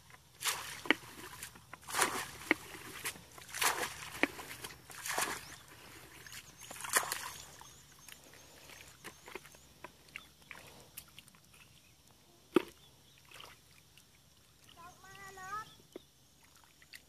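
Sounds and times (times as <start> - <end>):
muddy water sloshing from bucket: 0.0 - 17.0
hands squelching in mud: 0.2 - 11.8
faint high chirps: 5.1 - 16.5.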